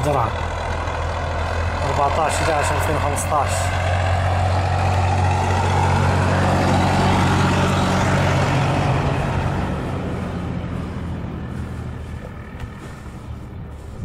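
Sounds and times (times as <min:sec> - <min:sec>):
helicopter flying overhead: 0:00.0 - 0:14.0.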